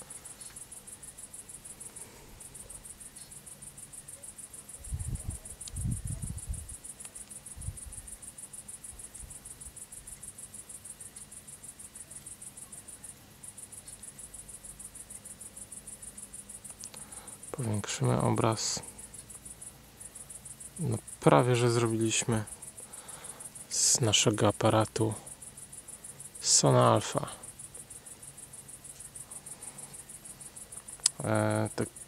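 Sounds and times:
insects trilling: 0:00.0 - 0:32.0.

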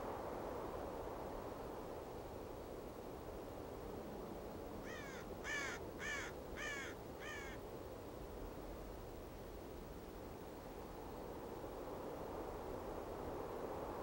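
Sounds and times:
low hiss: 0:00.0 - 0:14.0
crow cawing: 0:04.8 - 0:07.6.

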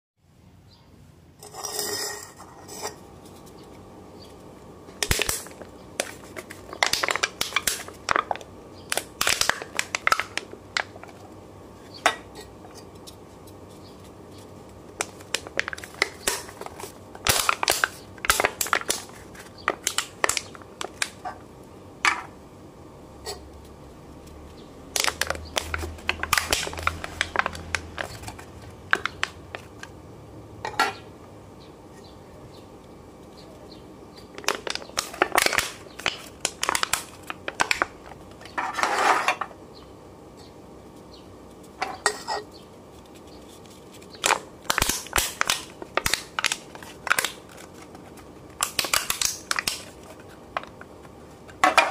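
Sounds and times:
beer cans being crushed: 0:05.0 - 0:11.1, 0:15.0 - 0:21.2, 0:25.0 - 0:29.9, 0:34.3 - 0:38.9, 0:44.2 - 0:50.0.

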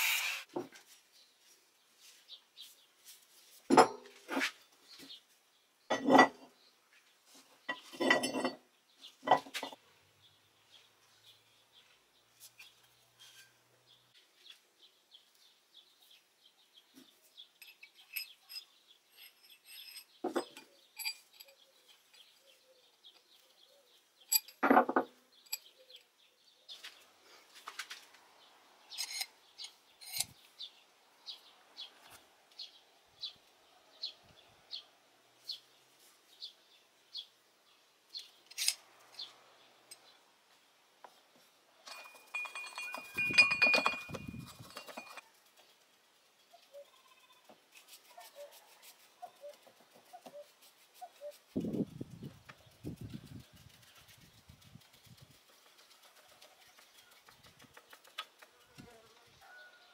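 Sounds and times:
metal parts clinking: 0:17.6 - 0:21.6, 0:28.9 - 0:30.3, 0:38.5 - 0:38.8, 0:41.9 - 0:45.2
paintbrush scrubbing on metal: 0:47.6 - 0:58.7.

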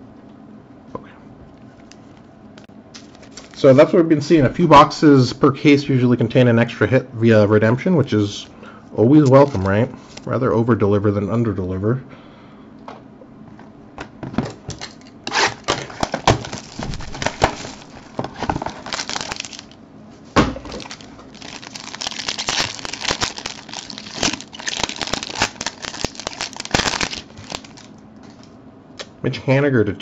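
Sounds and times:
plastic shrink wrap crinkling: 0:03.0 - 0:03.7, 0:15.3 - 0:19.8, 0:20.6 - 0:28.5
plastic wrapper snap: 0:15.6 - 0:19.8, 0:20.7 - 0:28.5.

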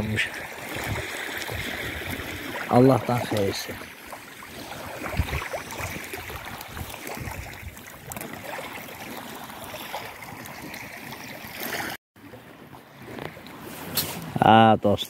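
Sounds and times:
wind on microphone: 0:00.6 - 0:02.6, 0:04.6 - 0:08.2.

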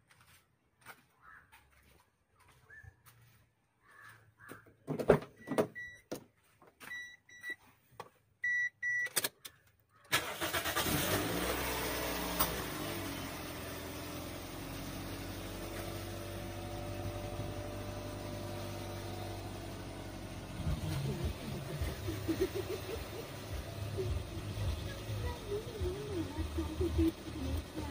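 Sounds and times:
car engine starting and idling: 0:08.4 - 0:27.9.

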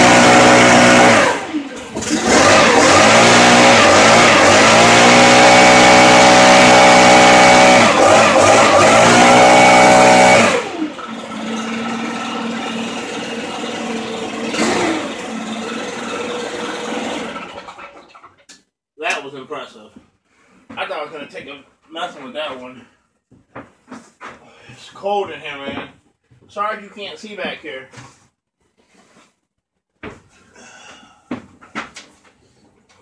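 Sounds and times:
leaf blower running: 0:00.0 - 0:17.8.

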